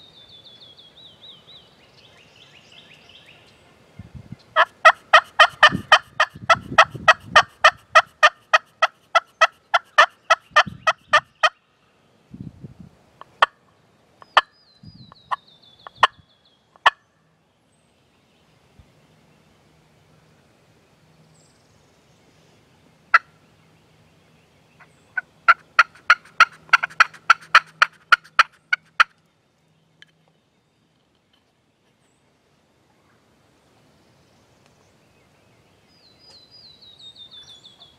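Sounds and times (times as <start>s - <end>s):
turkey calling: 4.6s - 11.6s, 24.8s - 29.2s.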